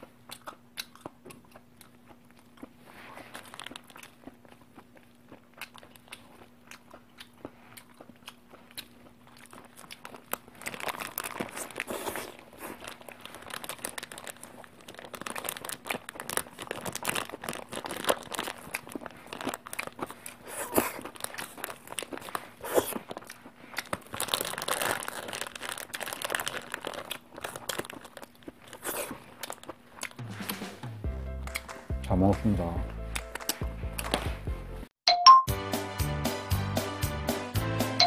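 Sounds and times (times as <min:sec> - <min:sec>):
chewing: 0:00.0 - 0:30.6
plastic wrapper crinkling: 0:03.0 - 0:04.2, 0:09.3 - 0:30.2, 0:33.0 - 0:34.4.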